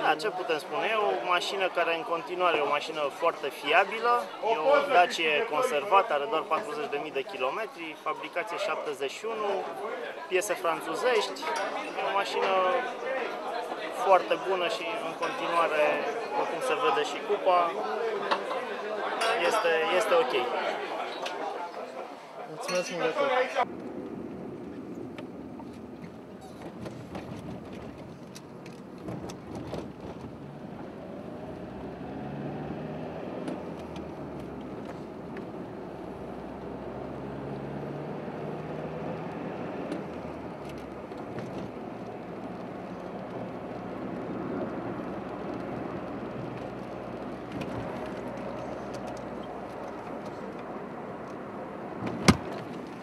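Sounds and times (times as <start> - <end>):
car engine and road noise: 23.6 - 53.0.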